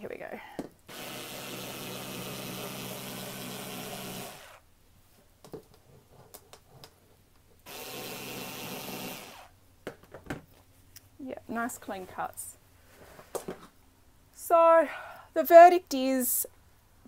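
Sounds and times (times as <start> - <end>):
cordless screwdriver cutter running: 0.9 - 4.6, 7.7 - 9.5.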